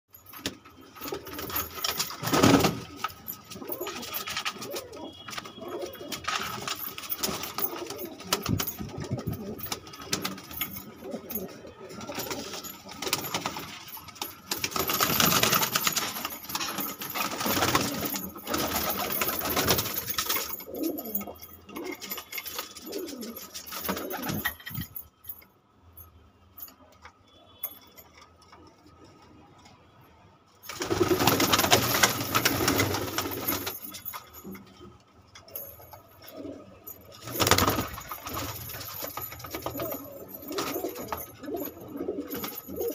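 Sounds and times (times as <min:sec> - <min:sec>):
pigeons cooing: 0:03.6 - 0:06.7, 0:39.5 - 0:42.9.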